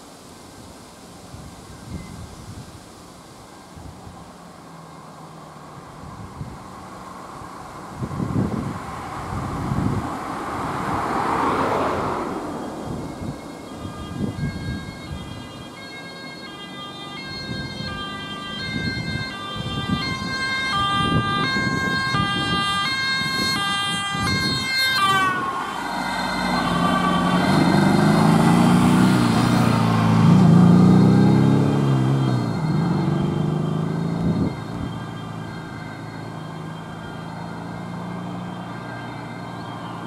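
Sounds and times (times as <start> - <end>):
two-tone ambulance siren: 7.4 - 40.0
engine running close by: 25.5 - 40.0.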